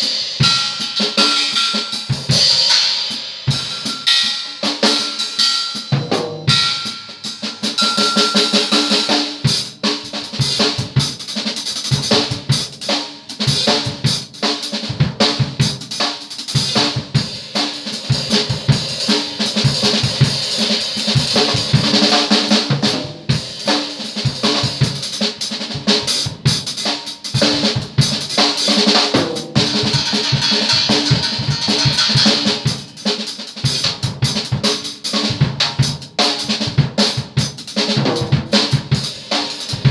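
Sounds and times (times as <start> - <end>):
cymbals washing: 0.0 - 9.2
fast drum kit pattern: 0.0 - 39.9.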